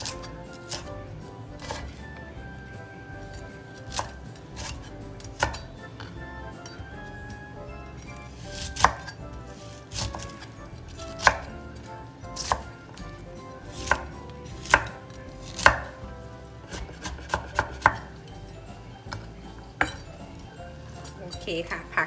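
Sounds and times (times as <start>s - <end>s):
knife chopping cabbage on board: 0.0s - 1.0s, 1.6s - 2.1s, 3.2s - 6.8s, 8.1s - 18.2s.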